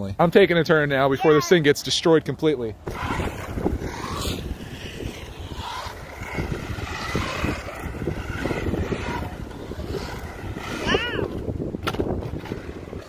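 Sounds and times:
steady rumble: 2.7s - 13.0s
electric motor whining: 2.8s - 13.0s.

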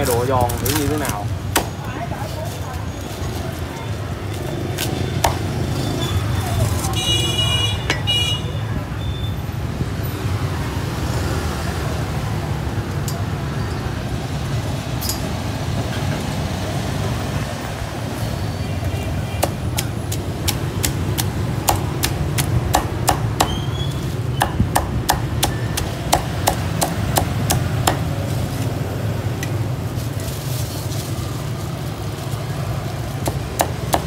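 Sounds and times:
street traffic rumble: 0.0s - 34.0s
meat cleaver chopping pork: 4.8s - 5.5s, 19.4s - 28.1s, 33.2s - 34.0s.

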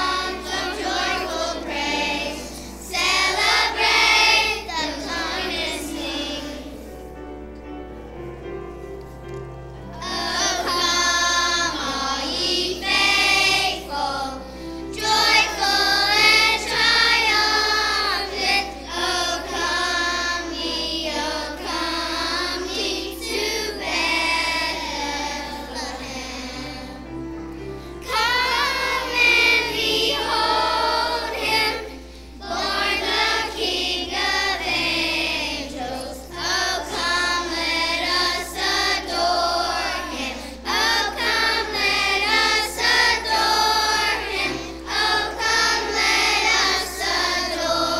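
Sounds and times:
children's choir singing: 0.0s - 47.9s.

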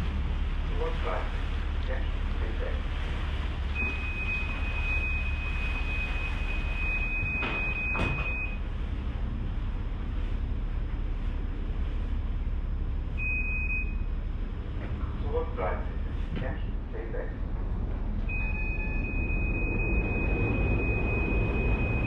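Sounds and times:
ferry engine droning: 0.0s - 22.0s
high-pitched beep: 18.3s - 22.0s.

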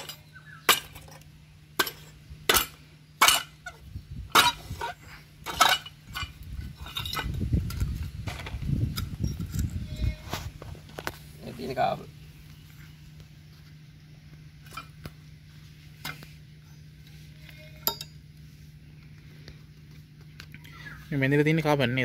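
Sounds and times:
metal rattling and scraping: 0.0s - 11.8s.

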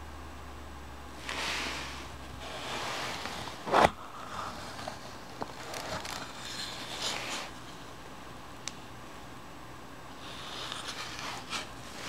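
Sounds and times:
wood rubbing and scraping on wood: 1.2s - 7.9s, 10.2s - 12.0s.

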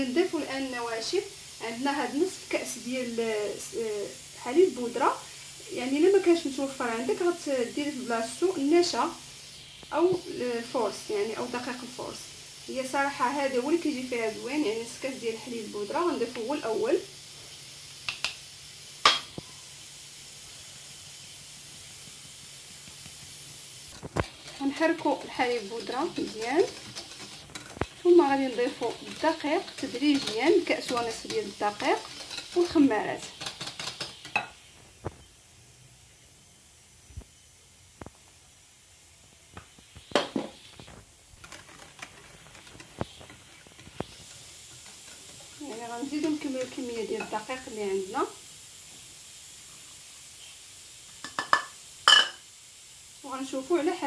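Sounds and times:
flour sifting through sieve: 0.0s - 17.6s, 20.3s - 34.3s, 40.8s - 48.4s
steady hiss: 0.0s - 54.0s
whisk stirring batter: 23.9s - 34.3s, 41.4s - 47.4s
whisk clicking against bowl: 24.0s - 34.5s.

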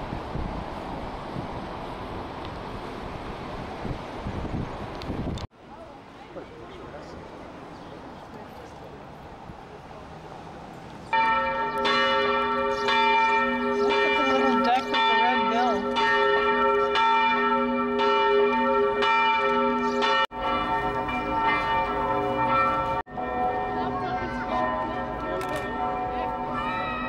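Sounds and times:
church bells ringing: 11.1s - 27.0s.

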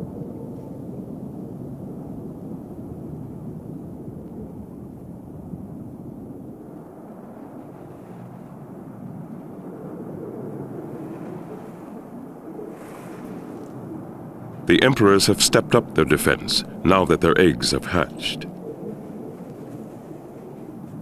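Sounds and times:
low underwater rumbling: 5.2s - 14.7s.

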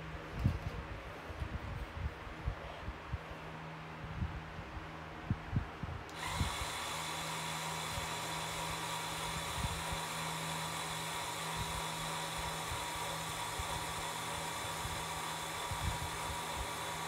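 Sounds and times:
small electric motors whining: 6.1s - 17.0s.

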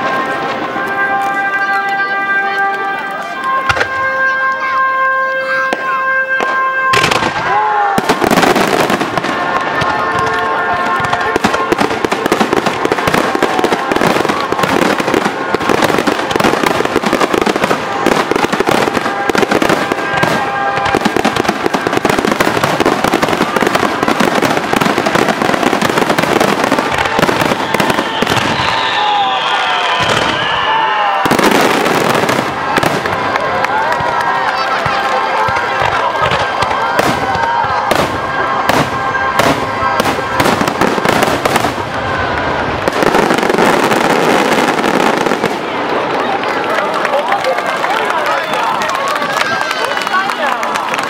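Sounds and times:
firework whistle falling: 0.0s - 45.4s
fireworks bursting: 0.0s - 51.0s.

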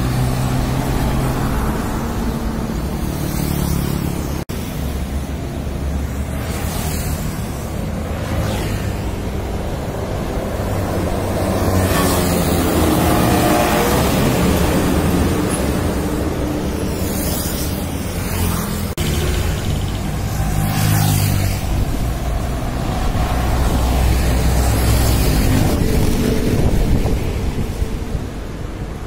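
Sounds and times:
cars passing: 0.0s - 29.0s.

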